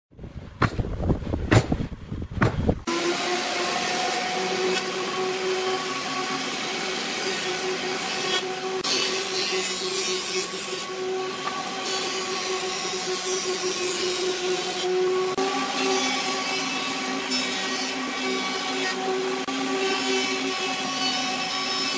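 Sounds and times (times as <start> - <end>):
heavy low knocks: 0.5 - 2.8
lathe motor hum: 2.8 - 21.9
lathe tool scraping wood: 2.8 - 21.9.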